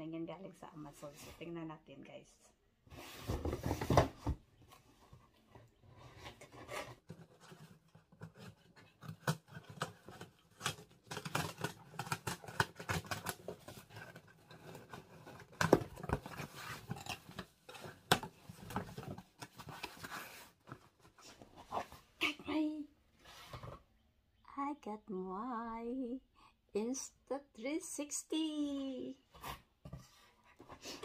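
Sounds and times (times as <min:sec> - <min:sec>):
cardboard flaps rustling: 0:02.9 - 0:22.2
packing tape tearing: 0:08.2 - 0:18.2.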